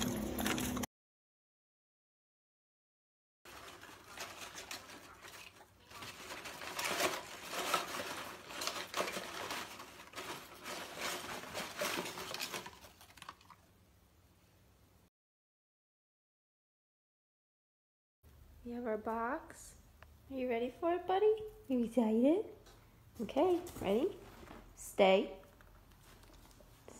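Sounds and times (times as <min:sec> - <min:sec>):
dog digging through paper: 0:03.5 - 0:13.4
paper crinkling and tearing: 0:03.5 - 0:13.6.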